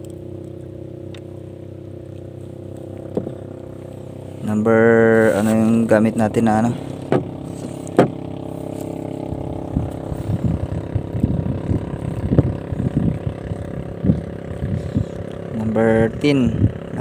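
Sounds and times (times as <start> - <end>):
boat engine droning: 0.0 - 17.0
soft knocks: 7.9 - 8.2.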